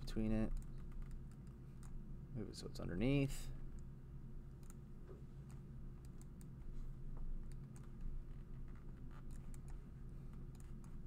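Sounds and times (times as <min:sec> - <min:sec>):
low steady hum: 0:00.0 - 0:11.0
mouse and keyboard clicks: 0:08.6 - 0:11.0.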